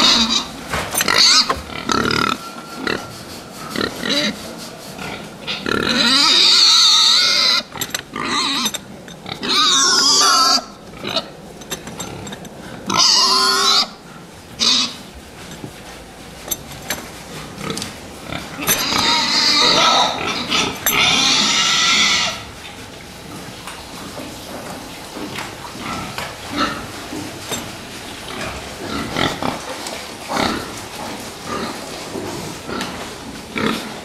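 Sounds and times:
pigs squealing: 0:00.0 - 0:11.4, 0:12.0 - 0:15.1, 0:17.5 - 0:22.6.

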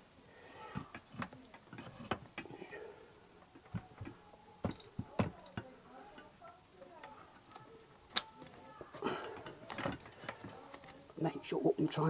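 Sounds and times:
clicks and knocks on motorcycle frame: 0:03.5 - 0:05.7, 0:09.3 - 0:10.6.

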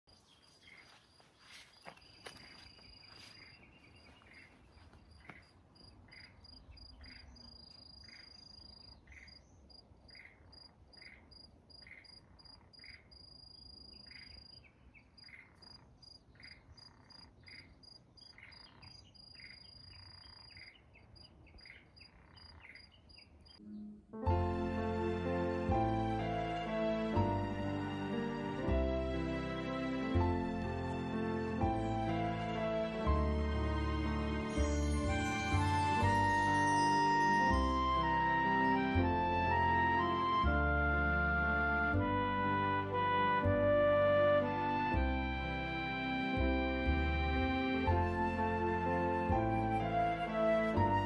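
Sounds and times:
frogs croaking: 0:00.4 - 0:23.7.

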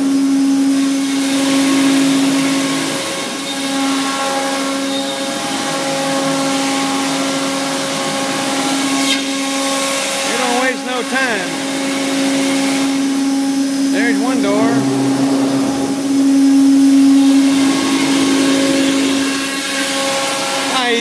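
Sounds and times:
router spindle whine: 0:14.2 - 0:16.8.

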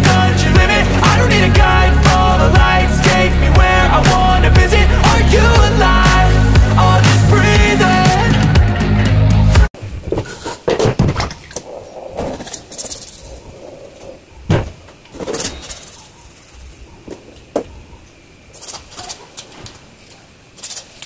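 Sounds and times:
background music: 0:00.0 - 0:09.7.

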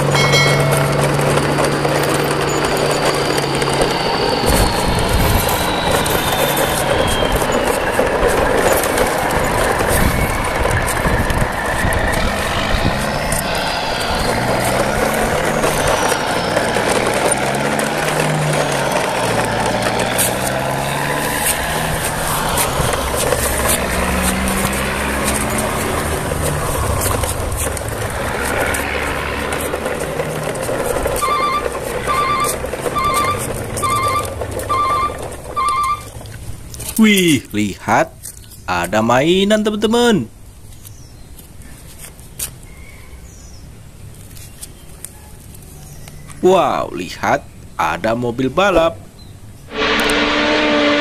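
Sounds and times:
heavy vehicle engines running: 0:00.0 - 0:51.0
short electronic beeps: 0:31.2 - 0:36.1.

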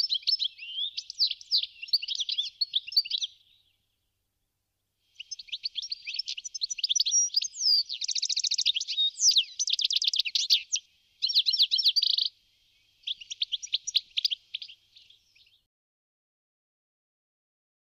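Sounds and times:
goldfinch twittering song: 0:00.0 - 0:03.8, 0:05.2 - 0:15.7.

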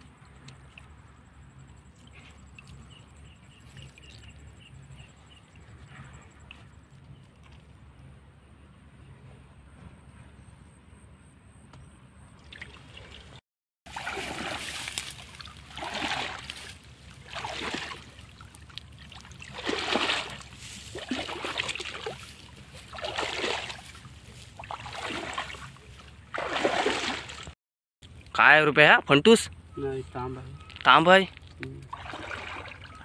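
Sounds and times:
water splashing and dripping: 0:00.0 - 0:01.2, 0:12.4 - 0:28.3, 0:30.8 - 0:33.0.

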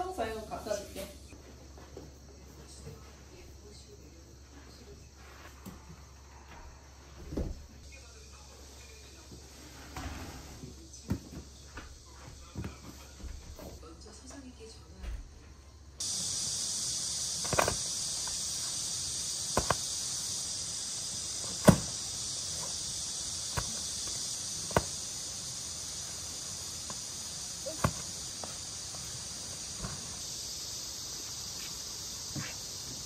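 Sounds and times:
insect drone: 0:00.0 - 0:33.0
mats slapping on stone paving: 0:17.3 - 0:18.6, 0:19.4 - 0:20.1, 0:21.4 - 0:25.4, 0:26.1 - 0:30.0
footsteps in slippers: 0:31.2 - 0:33.0.

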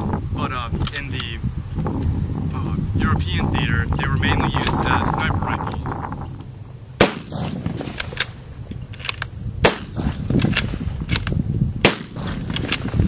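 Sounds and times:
rifle shots: 0:07.0 - 0:08.4, 0:09.0 - 0:11.2, 0:11.8 - 0:13.0
light rifle clicks: 0:08.0 - 0:09.3.

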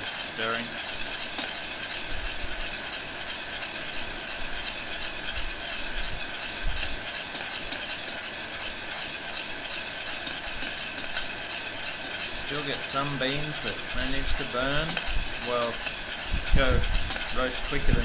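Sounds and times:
coffee beans rattling: 0:00.0 - 0:18.0.

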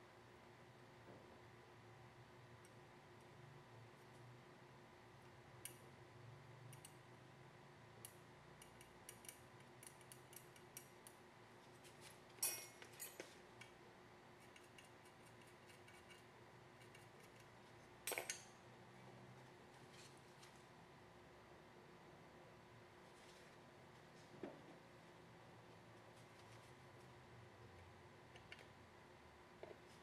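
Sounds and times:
faint steady hum: 0:00.0 - 0:30.0
small metal tool clicking: 0:06.7 - 0:07.0, 0:08.0 - 0:11.2.

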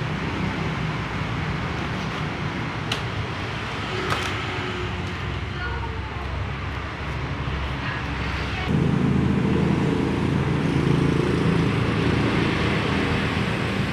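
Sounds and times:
traffic noise: 0:00.0 - 0:13.9
engine running: 0:06.3 - 0:13.9.

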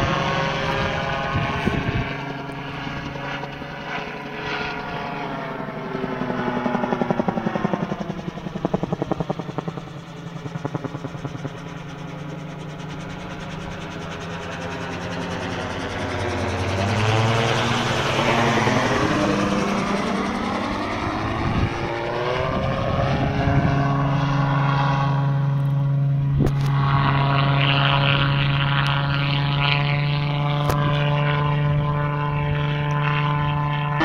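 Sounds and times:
gyrocopter engine and propeller droning: 0:00.0 - 0:34.0.

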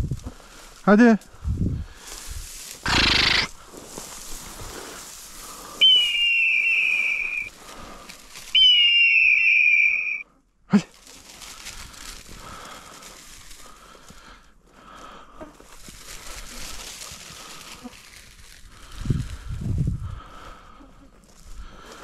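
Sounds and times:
dog whistle blasts: 0:05.8 - 0:07.5, 0:08.6 - 0:10.2.

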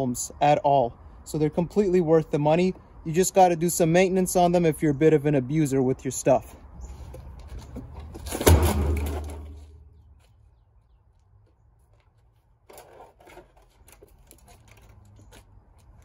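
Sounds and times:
dumpster walls ringing: 0:08.1 - 0:09.9
plastic crashing into metal dumpster: 0:08.2 - 0:09.6.

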